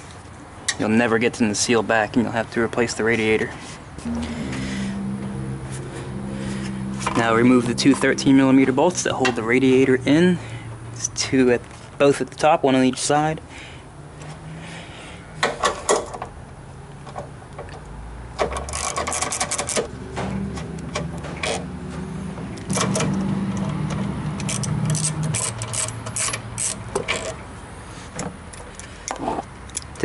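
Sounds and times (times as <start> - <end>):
low steady hum: 4.0 - 11.5
ratchet clicking: 22.7 - 27.4.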